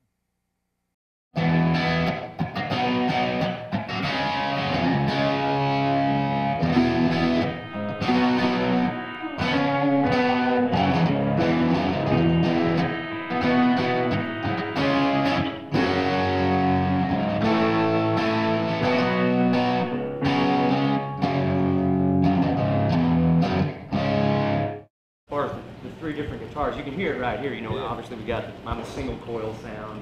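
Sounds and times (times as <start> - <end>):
electric guitar rock chords: 1.4 - 24.9.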